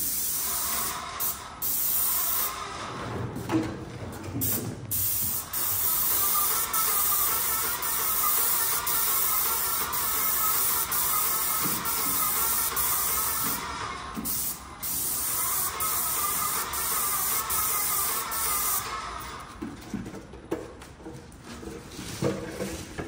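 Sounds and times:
paint sprayer hissing: 0.0s - 2.9s, 4.4s - 19.6s.

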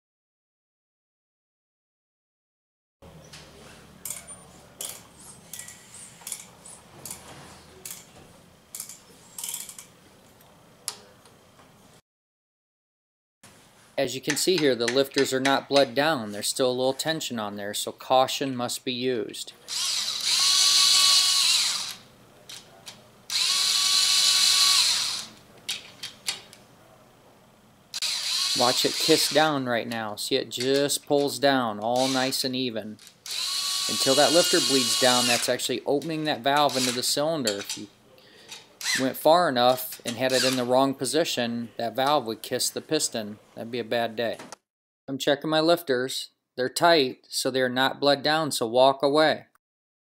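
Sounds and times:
power driver motor whine: 19.7s - 22.0s, 23.3s - 25.4s, 28.0s - 29.4s, 33.3s - 35.4s.

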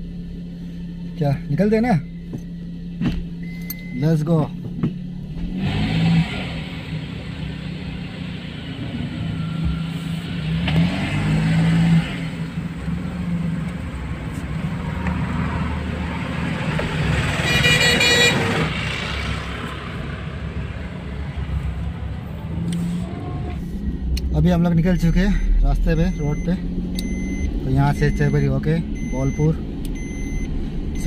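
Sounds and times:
car engine running: 0.0s - 31.0s
road noise: 0.0s - 31.0s
vehicle horn honking: 17.4s - 18.7s.

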